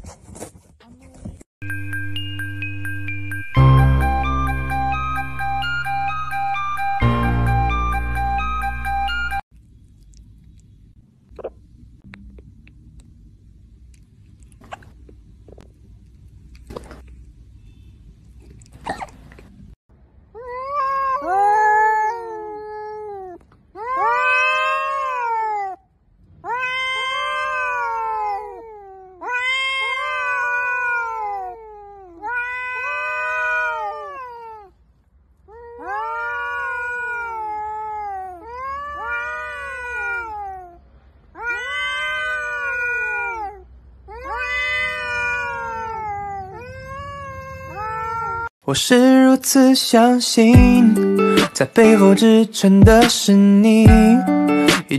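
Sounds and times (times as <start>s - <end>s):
cats yowling: 20.4s - 34.8s, 35.4s - 48.5s.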